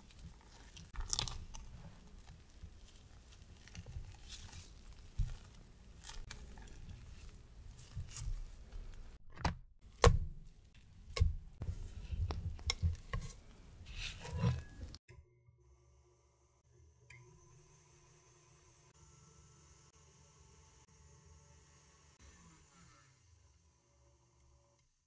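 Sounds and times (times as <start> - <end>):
spatula scraping cream in jug: 12.2 - 15.0.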